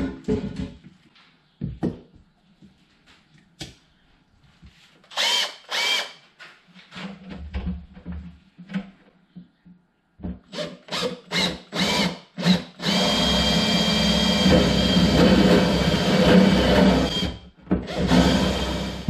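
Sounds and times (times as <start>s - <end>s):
cordless drill spinning up: 5.1s - 6.1s, 17.9s - 19.0s
drill bit cutting panel: 10.9s - 17.3s, 17.9s - 19.0s.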